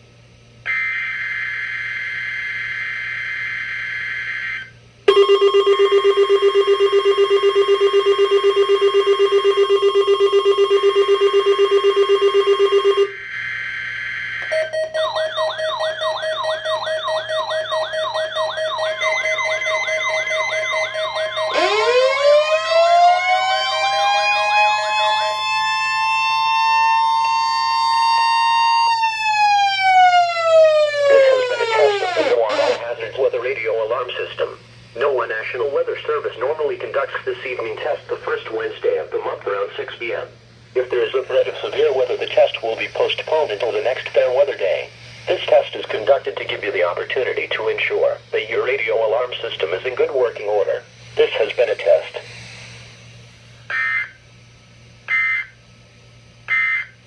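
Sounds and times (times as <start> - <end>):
siren tone: 0.7 - 33.0, 53.7 - 54.3, 55.0 - 55.6, 56.5 - 57.0
warbling alarm tones: 0.7 - 55.8, 56.4 - 57.0
rapid electronic beeping: 5.1 - 13.3, 14.4 - 21.8, 31.0 - 34.4
raspy digital data screech: 31.2 - 33.0.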